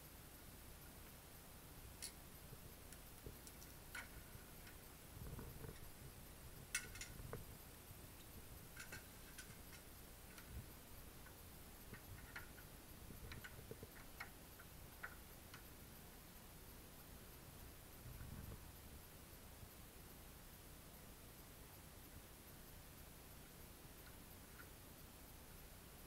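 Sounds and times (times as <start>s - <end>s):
metallic clicks and taps: 2.9s - 4.8s, 6.7s - 7.4s.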